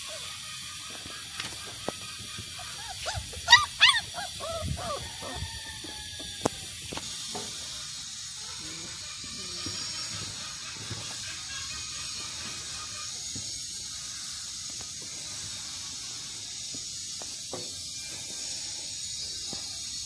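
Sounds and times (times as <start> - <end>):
puppies yelping and whining: 0.0 - 6.5
steady hiss: 0.0 - 20.0.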